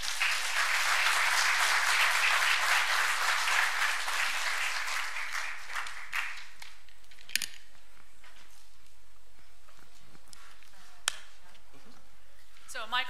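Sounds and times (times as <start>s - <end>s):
audience applause: 0.0s - 6.8s.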